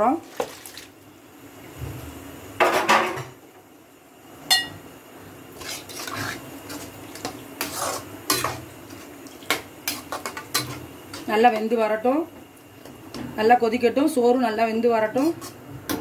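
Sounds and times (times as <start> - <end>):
ladle scraping and knocking pan: 5.6 - 11.3.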